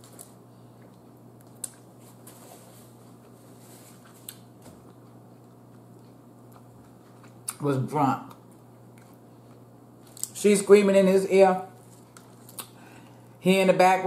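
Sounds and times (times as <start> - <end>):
steady low hum: 0.0 - 14.0
chewing and wet mouth sounds: 0.1 - 2.0, 4.0 - 7.6, 8.2 - 10.4, 11.8 - 12.8.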